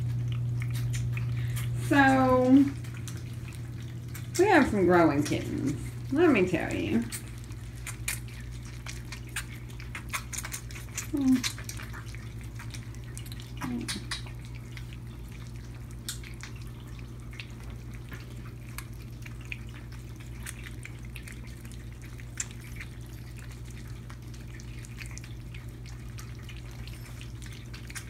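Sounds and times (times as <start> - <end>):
kittens eating wet food: 0.0 - 28.0
low steady hum: 0.0 - 28.0.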